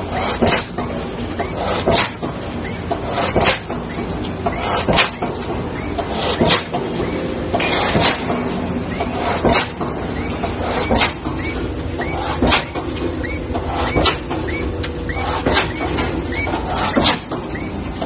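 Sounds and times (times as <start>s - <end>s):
pile driver hammer striking concrete: 0.2s - 0.8s, 1.7s - 2.3s, 9.4s - 9.9s, 12.1s - 12.8s, 13.5s - 14.6s, 16.7s - 17.6s
short squeak: 13.2s - 17.8s.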